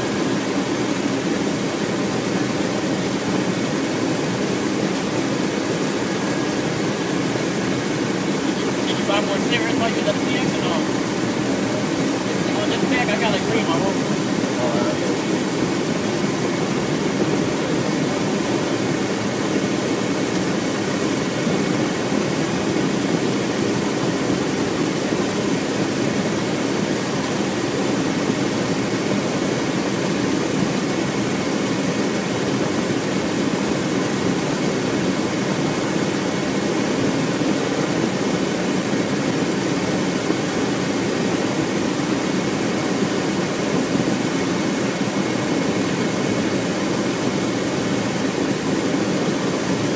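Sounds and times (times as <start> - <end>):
vehicle engine and road noise: 0.0 - 26.6
faint high whine: 0.0 - 29.3.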